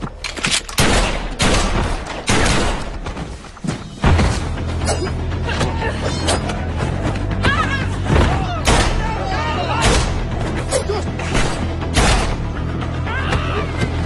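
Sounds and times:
heavy bass music score: 4.0s - 14.0s.

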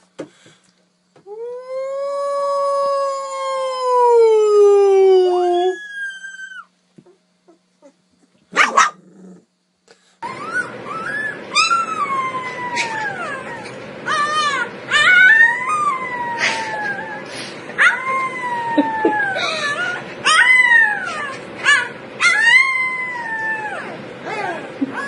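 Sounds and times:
puppy howling: 1.3s - 6.7s, 10.2s - 25.0s
puppy howling and yowling: 1.3s - 6.8s, 10.2s - 25.0s
puppy yelp: 10.2s - 25.0s.

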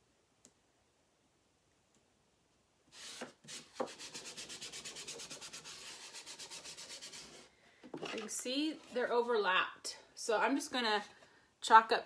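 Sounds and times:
hand rubbing on board: 3.0s - 7.5s.

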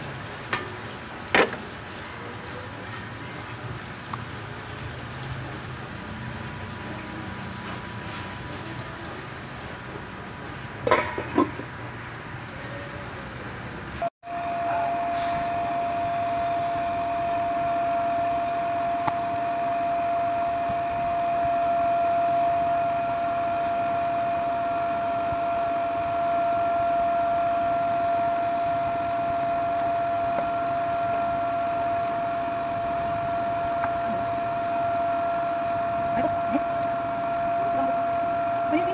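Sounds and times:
machine droning hum: 0.0s - 38.9s
high machine whine: 14.0s - 38.9s
higher whine: 14.2s - 38.9s.

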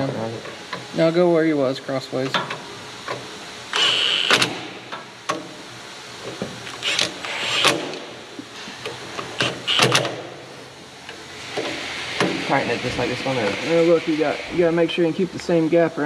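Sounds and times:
impact wrench bursts: 3.7s - 4.9s, 6.6s - 8.2s, 9.2s - 10.4s.

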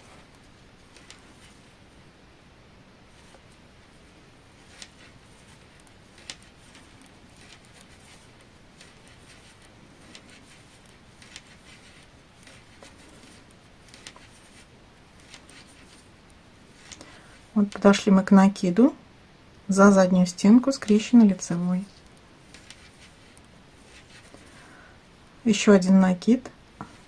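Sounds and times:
quiet room hiss: 0.0s - 27.0s
knitting needles clicking: 0.3s - 1.6s, 4.6s - 14.6s, 22.0s - 24.4s.

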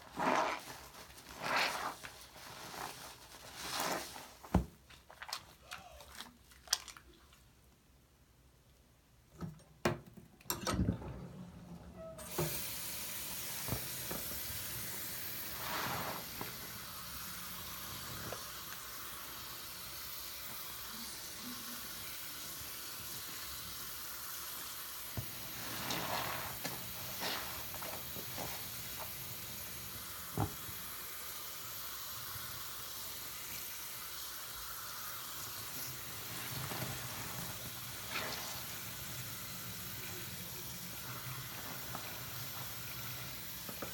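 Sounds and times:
sponge squelching in lather: 0.0s - 7.5s, 13.7s - 17.0s, 25.2s - 29.8s, 34.9s - 43.9s
tap water running: 10.5s - 43.9s
fizzing watery hiss: 12.3s - 43.9s.

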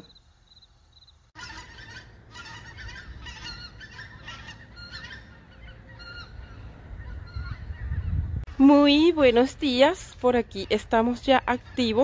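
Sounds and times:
geese honking: 1.4s - 8.2s.

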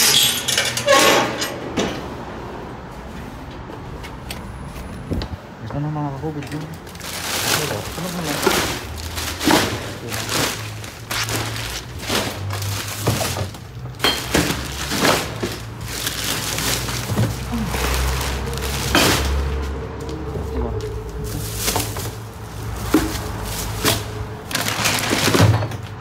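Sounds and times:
hard objects knocking and clattering: 7.0s - 19.6s, 21.5s - 26.0s.

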